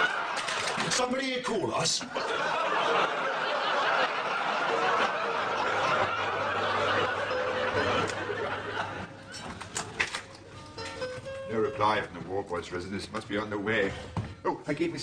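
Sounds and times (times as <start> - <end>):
studio audience laughing: 0.0 - 0.9, 2.0 - 9.5.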